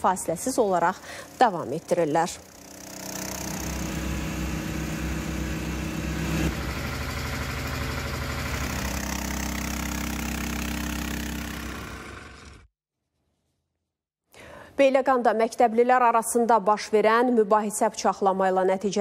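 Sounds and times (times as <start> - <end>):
water pump engine running: 0.0 - 12.7.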